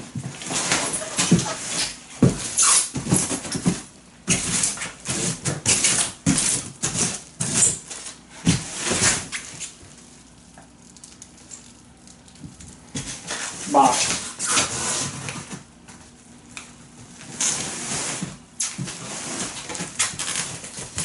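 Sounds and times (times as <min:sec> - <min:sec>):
plastic wrap crinkling: 0:09.2 - 0:13.6, 0:19.5 - 0:21.0.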